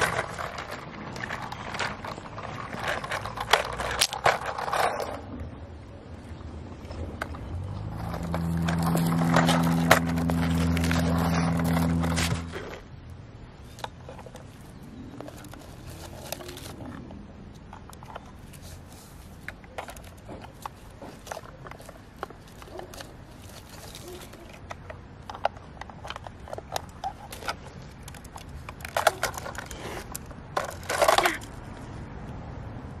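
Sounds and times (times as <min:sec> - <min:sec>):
toy truck clicking and knocking: 0:00.0 - 0:05.2, 0:07.2 - 0:12.9, 0:13.6 - 0:31.7
plastic wheels scraping over wood: 0:00.0 - 0:05.5, 0:06.8 - 0:12.9, 0:13.6 - 0:32.0
low engine-like drone: 0:06.7 - 0:12.9.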